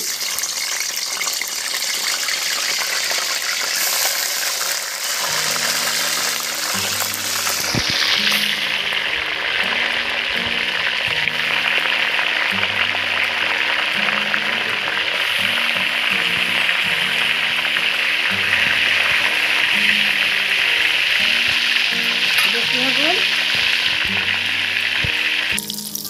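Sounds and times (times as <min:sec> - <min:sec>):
fish sizzling in hot oil: 0:00.0 - 0:26.0
background music with low melody: 0:03.8 - 0:26.0.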